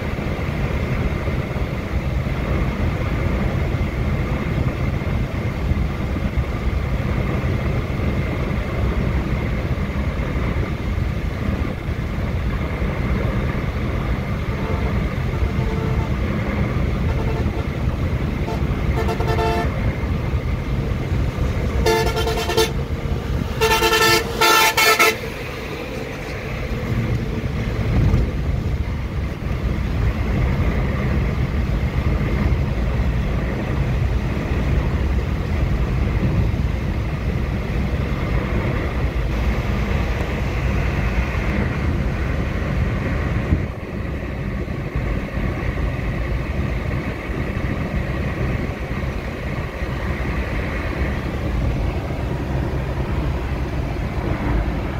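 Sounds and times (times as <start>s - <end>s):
engine and tyre rumble in car: 0.0s - 54.9s
car horn blasts: 14.5s - 16.3s, 17.0s - 17.8s, 18.4s - 19.8s, 21.8s - 22.8s, 23.6s - 25.3s.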